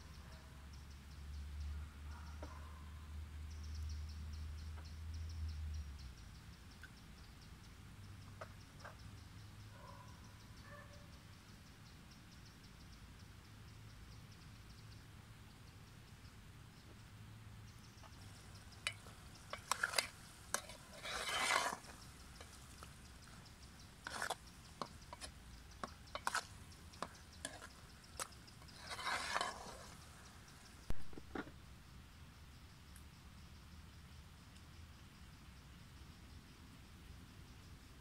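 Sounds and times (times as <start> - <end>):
spoon scraping metal pot: 18.2 - 30.3.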